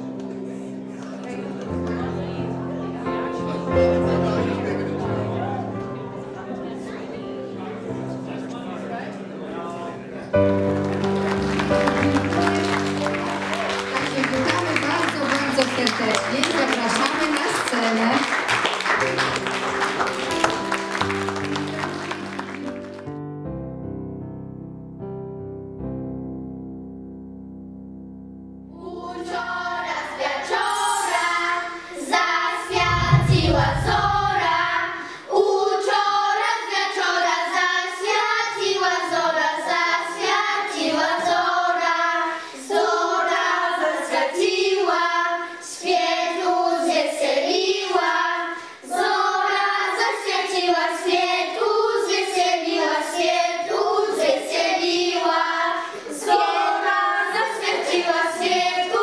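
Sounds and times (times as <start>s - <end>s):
piano: 0.0s - 59.0s
children singing a carol: 28.7s - 59.0s
low rumble: 32.7s - 35.0s.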